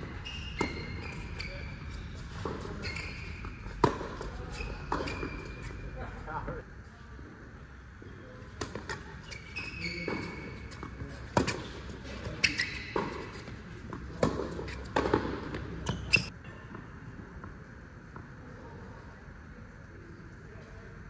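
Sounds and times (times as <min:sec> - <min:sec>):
tennis balls struck and bouncing: 0:00.0 - 0:05.8, 0:09.9 - 0:16.8
shoe squeaks: 0:00.0 - 0:06.0, 0:09.0 - 0:13.6, 0:15.6 - 0:16.3.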